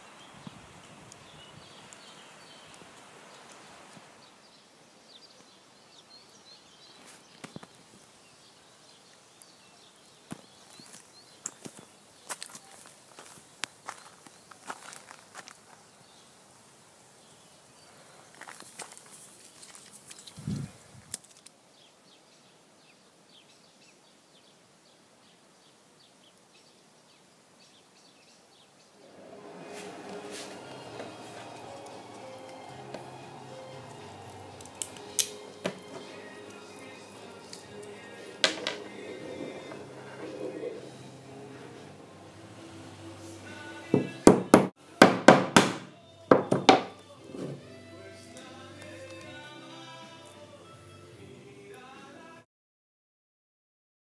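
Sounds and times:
outdoor hiss: 0:00.0 - 0:45.1
footsteps on gravel: 0:10.3 - 0:16.0, 0:18.3 - 0:20.5
music: 0:29.0 - 0:52.4.

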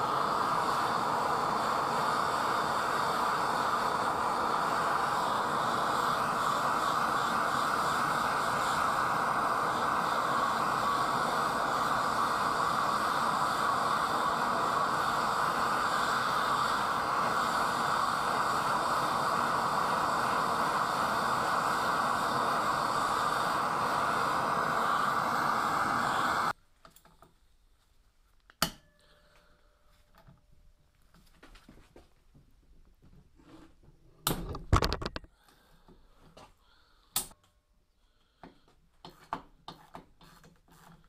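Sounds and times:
blowtorch flame hissing: 0:00.0 - 0:26.6.

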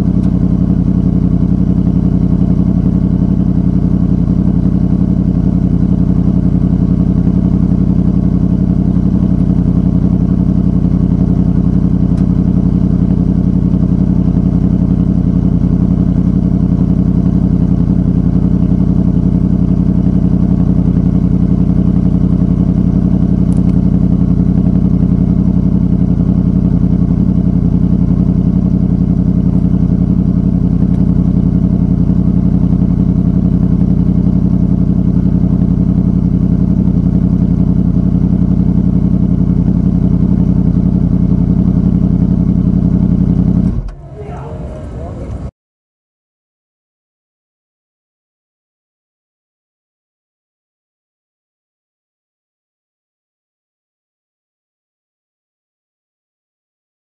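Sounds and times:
motorcycle engine running steadily: 0:00.0 - 0:45.5.

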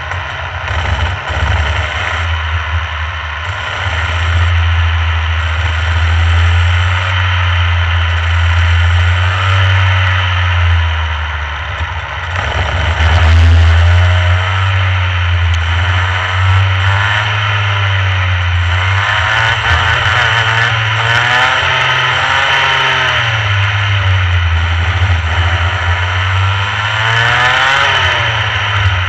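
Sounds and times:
kart two-stroke engine revving: 0:00.0 - 0:29.0.

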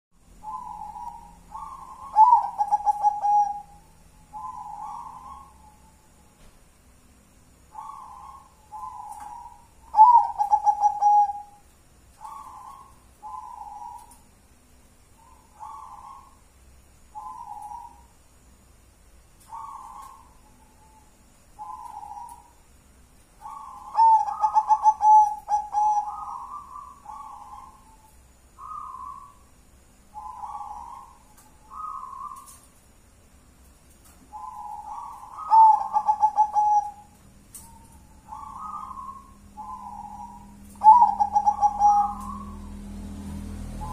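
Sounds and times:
dove cooing: 0:00.3 - 0:06.0, 0:07.7 - 0:11.6, 0:12.2 - 0:14.3, 0:15.2 - 0:16.4, 0:17.1 - 0:18.1, 0:19.4 - 0:22.6, 0:23.4 - 0:29.4, 0:30.1 - 0:32.7, 0:34.3 - 0:43.9.

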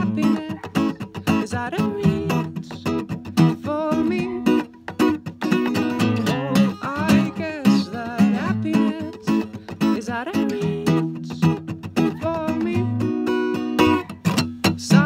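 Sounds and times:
fingerstyle acoustic guitar: 0:00.0 - 0:15.0.

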